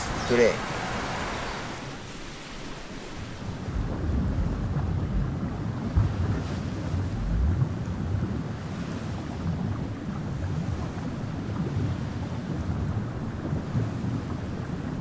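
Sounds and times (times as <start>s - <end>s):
wind buffeting microphone: 1.1s - 15.0s.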